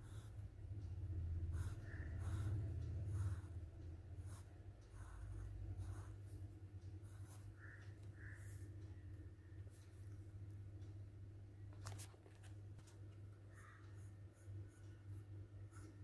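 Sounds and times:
low steady hum: 0.0s - 16.0s
pencil scratching on paper: 1.5s - 3.6s, 4.2s - 8.6s.

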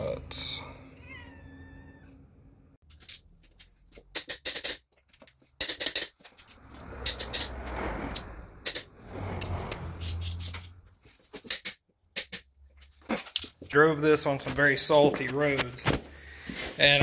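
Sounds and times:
scuffing noise: 14.3s - 17.0s.

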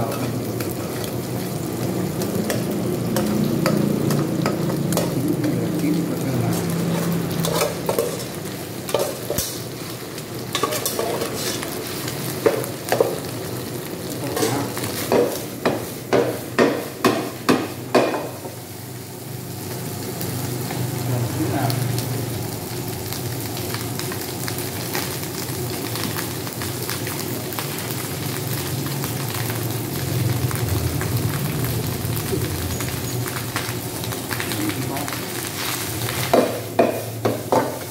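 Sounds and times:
egg and rice sizzling in pan: 0.0s - 37.9s
spatula knocking against pan: 36.3s - 37.8s.

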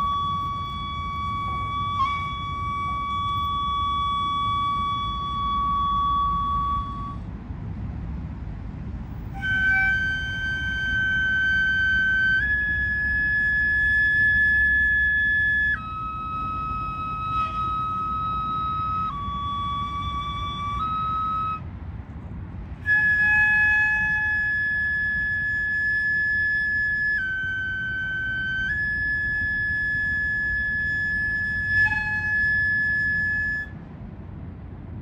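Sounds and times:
bamboo flute long notes: 0.0s - 7.3s, 9.2s - 21.7s, 22.8s - 33.8s
low steady rumble: 0.0s - 35.0s.

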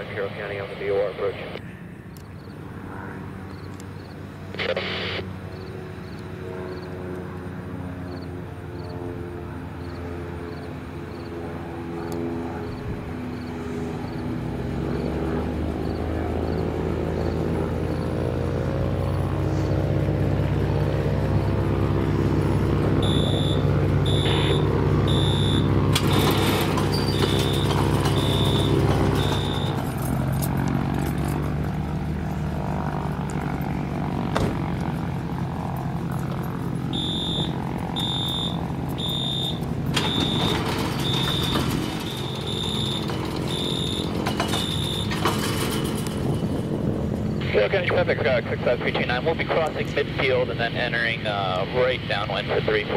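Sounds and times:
propeller plane engine: 0.0s - 52.9s
short high beeps: 23.0s - 25.7s, 27.2s - 29.8s, 37.0s - 45.2s.

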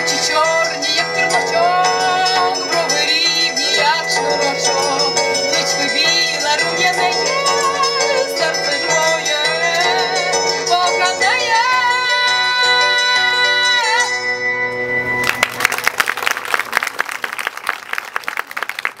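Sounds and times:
woman singing: 0.0s - 14.2s
audience applauding: 15.2s - 19.0s.

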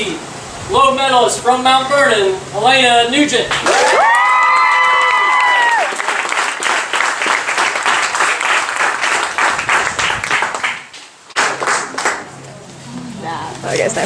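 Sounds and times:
crowd clapping: 3.5s - 12.4s
person shouting cheer: 3.7s - 6.0s.

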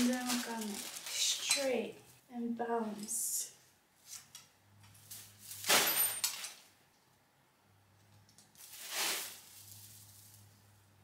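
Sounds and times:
artificial tree rustling and scraping: 0.0s - 2.2s, 4.0s - 5.7s, 8.6s - 10.9s.

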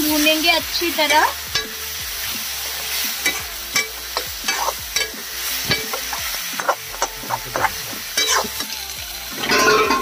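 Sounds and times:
chicken sizzling in oil: 0.0s - 10.0s
metal spatula scraping a pan: 2.8s - 8.8s.

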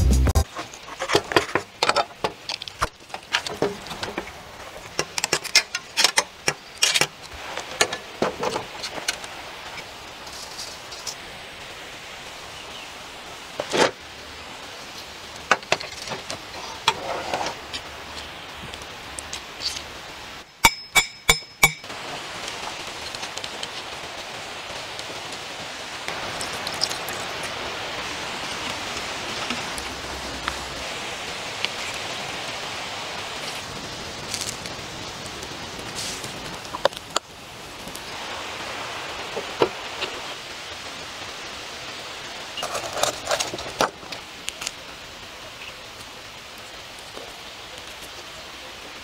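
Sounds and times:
campfire hissing: 0.1s - 49.0s
sharp metallic clinks: 20.6s - 21.9s.

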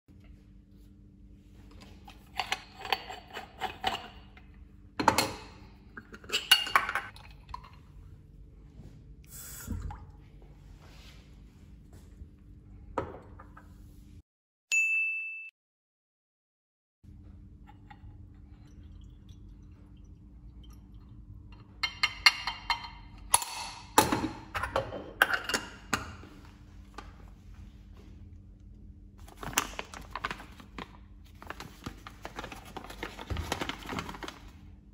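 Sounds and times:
metal coffee pot parts clinking: 2.1s - 4.2s, 6.0s - 7.8s.

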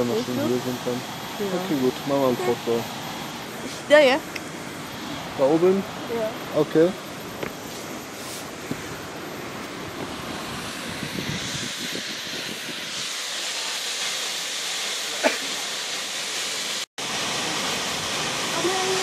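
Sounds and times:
distant waterfall rushing: 13.2s - 19.0s.

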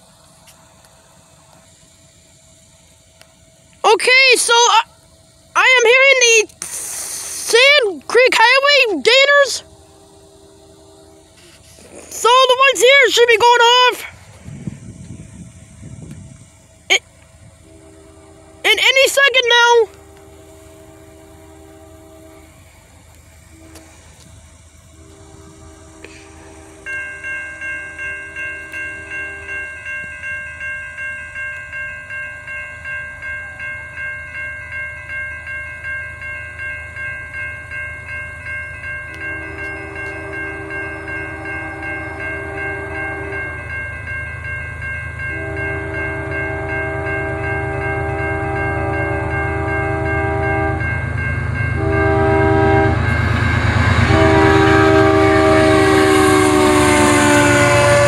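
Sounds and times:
crossing warning bell ringing: 0.0s - 58.0s
freight train rumble: 0.0s - 58.0s
train air horn blasts: 6.5s - 14.0s, 17.4s - 27.0s, 39.1s - 43.6s, 45.3s - 58.0s.

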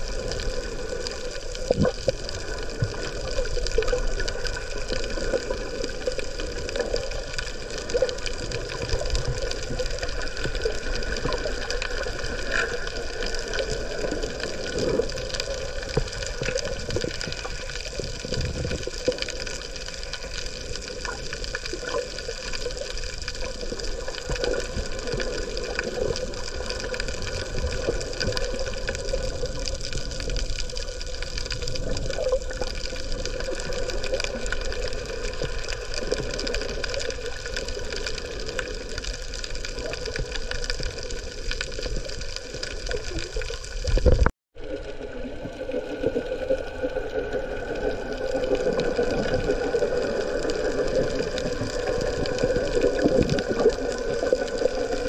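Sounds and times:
watery rush underwater: 0.0s - 55.0s.

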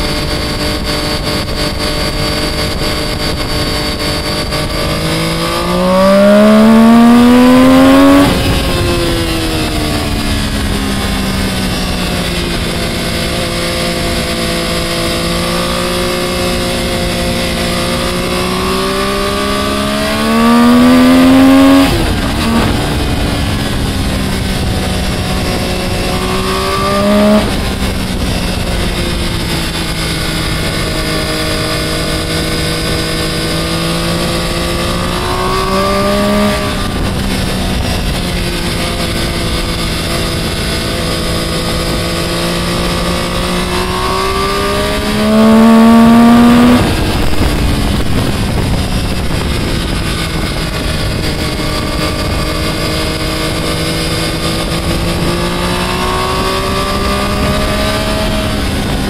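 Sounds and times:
motorcycle engine revving: 0.0s - 59.0s
wind rushing over microphone: 0.0s - 59.0s.

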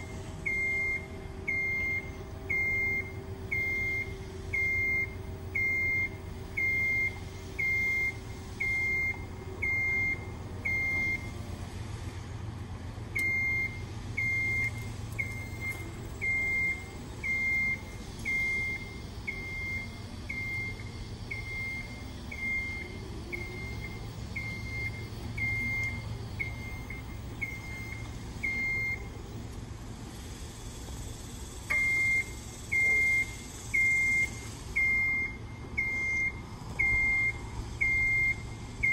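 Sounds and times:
high-pitched alarm beeping: 0.0s - 11.3s, 13.2s - 29.1s, 31.7s - 38.9s
low steady hum: 0.0s - 38.9s.

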